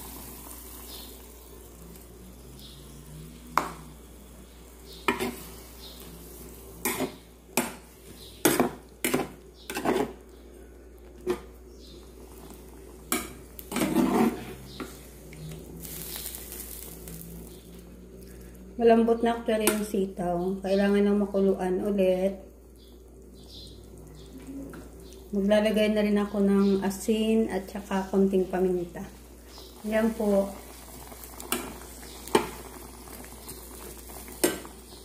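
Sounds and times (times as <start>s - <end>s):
spoon knocking on skillet: 5.0s - 5.4s, 6.8s - 10.2s, 13.1s - 14.1s, 34.3s - 34.7s.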